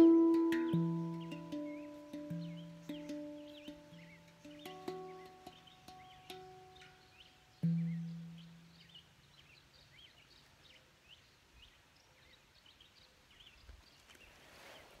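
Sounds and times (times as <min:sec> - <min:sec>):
handpan note ringing: 0:00.0 - 0:08.9
birds chirping: 0:00.0 - 0:14.3.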